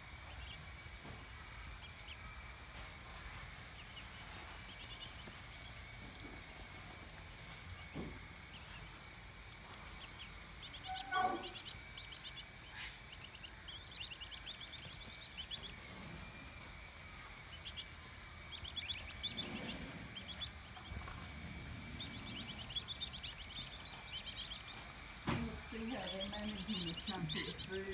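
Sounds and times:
ducklings peeping: 0:00.1 - 0:27.9.

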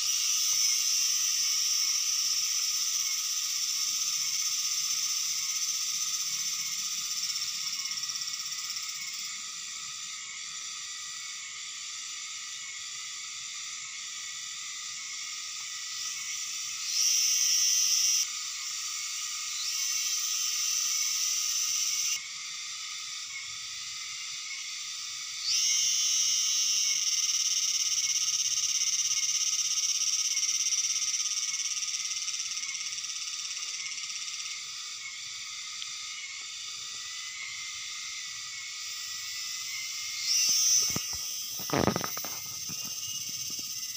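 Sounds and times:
high-pitched animal drone: 0:39.6 - 0:43.8.

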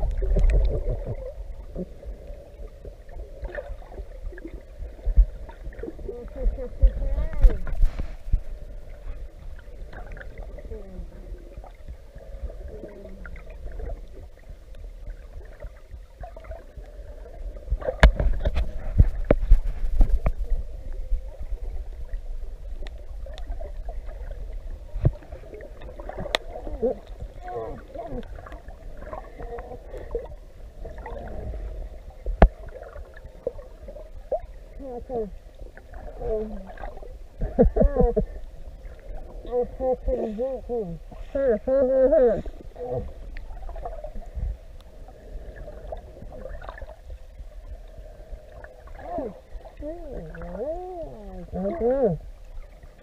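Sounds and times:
underwater low rumble: 0:00.0 - 0:53.0
faint clicks: 0:25.8 - 0:27.3.

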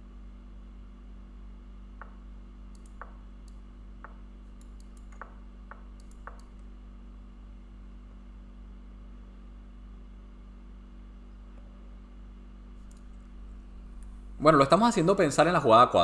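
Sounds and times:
low hum: 0:00.0 - 0:16.0
chess move clicks: 0:02.0 - 0:06.7
faint sharp ticks: 0:02.7 - 0:03.6.

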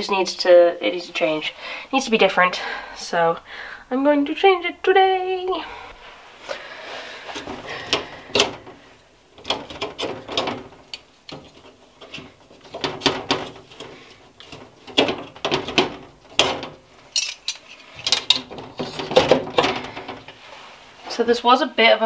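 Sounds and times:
plastic clips clicking and rattling: 0:09.4 - 0:20.2.

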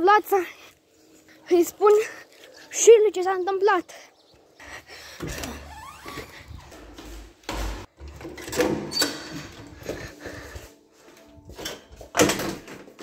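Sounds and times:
footsteps on tiled stairs: 0:04.6 - 0:13.0
door opening: 0:05.2 - 0:09.7.

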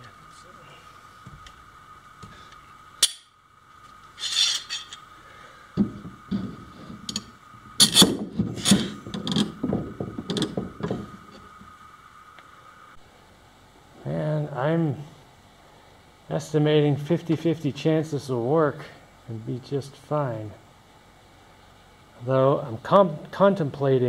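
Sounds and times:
clamp scraping slide: 0:04.2 - 0:05.0, 0:06.3 - 0:09.5.

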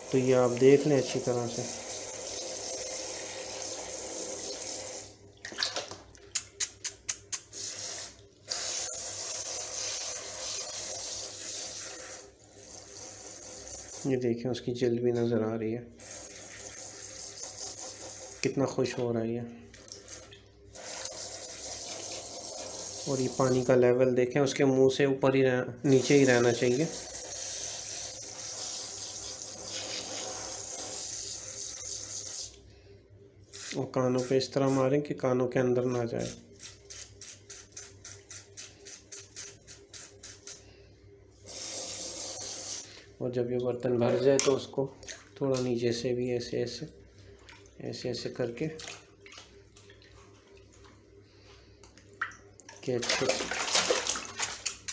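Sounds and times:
shower sprayer spraying water: 0:07.5 - 0:14.1, 0:16.0 - 0:18.4, 0:19.8 - 0:23.7, 0:25.9 - 0:32.6, 0:33.5 - 0:34.9, 0:36.2 - 0:40.6, 0:41.4 - 0:42.9
shower head spraying water: 0:36.6 - 0:40.6, 0:41.5 - 0:42.9
water splashing: 0:48.7 - 0:50.9, 0:52.1 - 0:54.8.

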